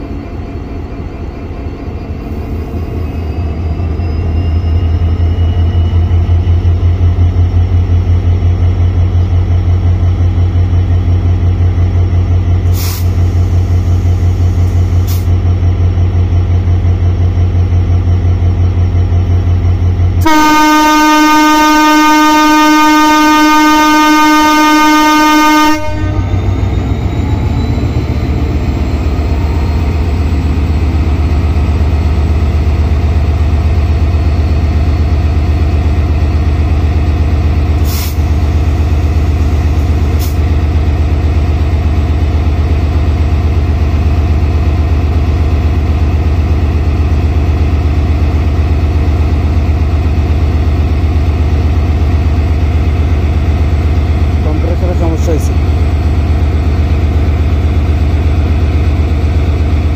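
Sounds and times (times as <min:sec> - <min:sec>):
brief high hisses: 0:12.7 - 0:13.9, 0:37.8 - 0:38.2
locomotive horn: 0:20.2 - 0:26.3.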